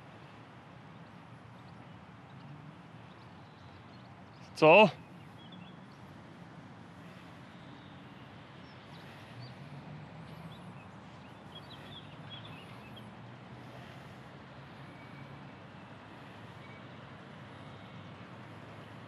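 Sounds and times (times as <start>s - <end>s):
bird chirps: 10.3s - 13.1s.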